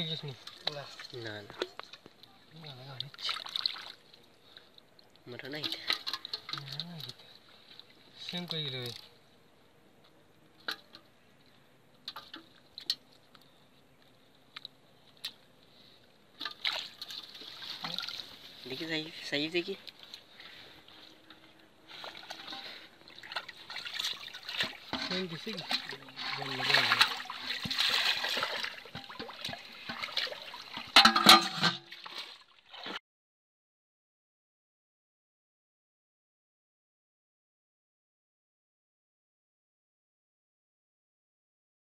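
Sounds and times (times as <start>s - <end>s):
water splashing and dripping: 0.0s - 9.0s, 16.4s - 18.9s, 21.2s - 33.0s
water sloshing: 0.0s - 9.2s, 16.4s - 33.0s
fish flapping and splashing: 25.5s - 31.0s
metal pot knocks: 30.9s - 31.8s.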